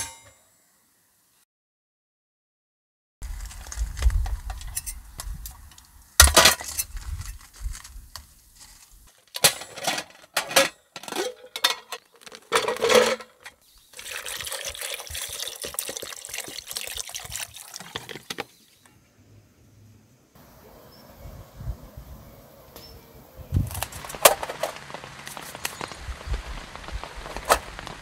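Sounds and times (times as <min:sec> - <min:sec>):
metal pot clinking on grill: 0:09.4 - 0:13.4
food pouring into pot: 0:14.0 - 0:18.4.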